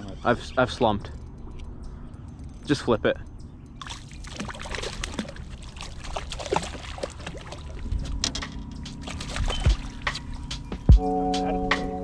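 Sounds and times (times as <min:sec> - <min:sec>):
water splashing and sloshing: 0:03.8 - 0:10.9.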